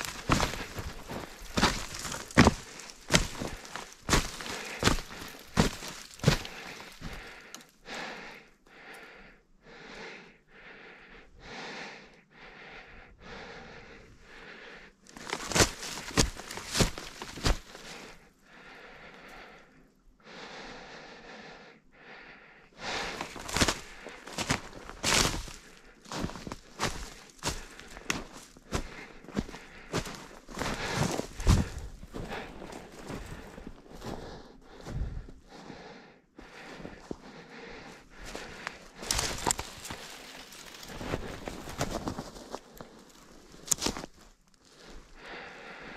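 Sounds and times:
footsteps on woodland floor: 0.0 - 7.6, 15.1 - 18.2, 22.8 - 35.8, 36.4 - 44.8
person breathing: 0.0 - 45.9.

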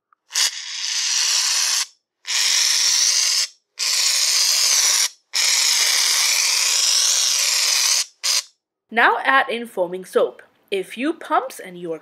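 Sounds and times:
aerosol can spraying hissing: 0.3 - 8.5.

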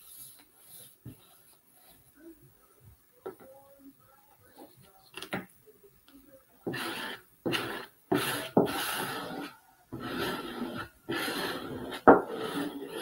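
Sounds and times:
squeegee scraping over paper on glass: 6.7 - 13.0.

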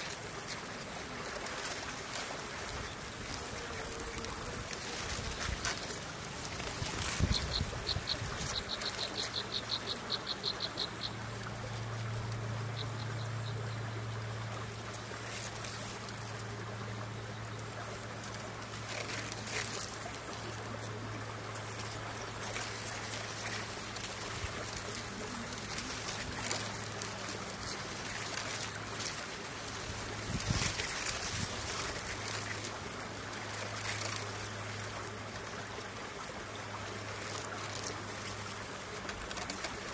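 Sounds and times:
bird chirping: 7.2 - 11.2.

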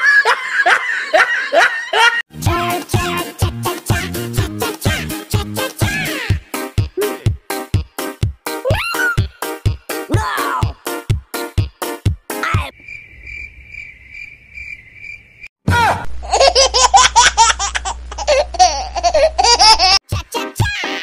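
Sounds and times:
children's song beat: 2.3 - 12.7, 20.1 - 21.0
cricket-like chirping trill: 12.7 - 15.5
high-pitched giggling: 16.2 - 21.0.

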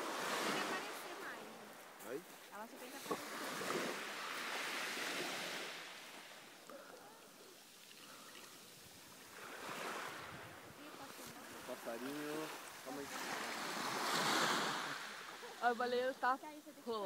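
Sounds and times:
small waves on a pebble beach: 0.0 - 17.0.

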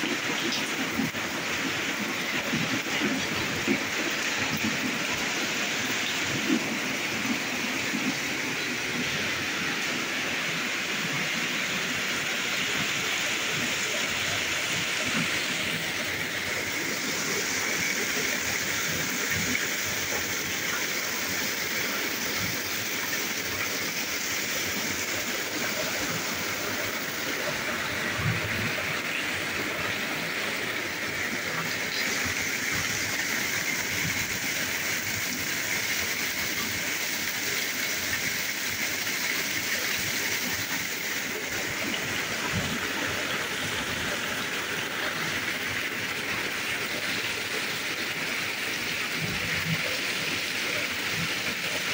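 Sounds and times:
water dripping off roof: 0.0 - 9.4
rain downpour: 0.0 - 51.9.

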